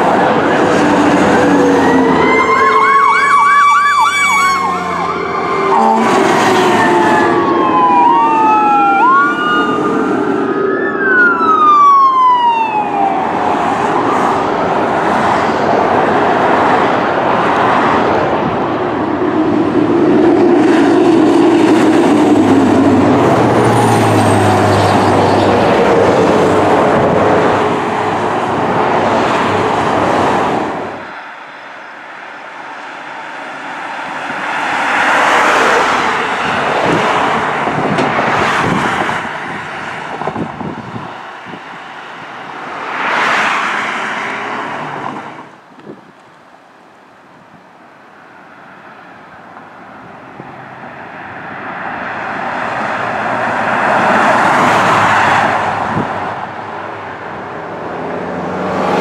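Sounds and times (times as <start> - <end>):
emergency siren yelping and wailing: 0.0 - 16.8, 18.9 - 43.8
heavy vehicle rumble: 0.0 - 31.3, 32.7 - 43.0, 49.5 - 59.0
highway traffic rushing: 0.0 - 59.0.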